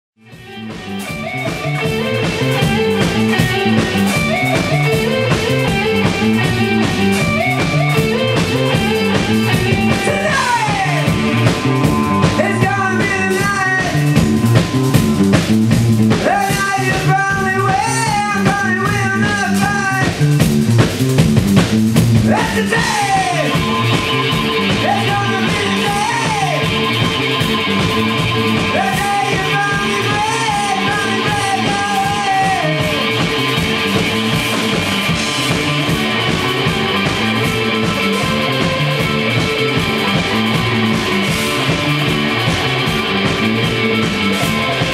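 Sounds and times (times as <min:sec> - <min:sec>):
bass guitar: 0:00.2 - 0:44.9
drum kit: 0:00.2 - 0:44.9
electric guitar: 0:00.2 - 0:44.9
person singing: 0:09.8 - 0:20.1, 0:24.6 - 0:26.7, 0:28.7 - 0:33.3.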